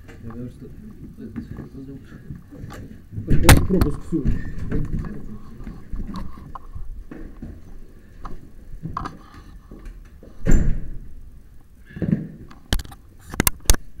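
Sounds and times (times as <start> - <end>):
handheld camera rustling and knocking: 1.0 - 10.0
loud thud: 3.3 - 4.0.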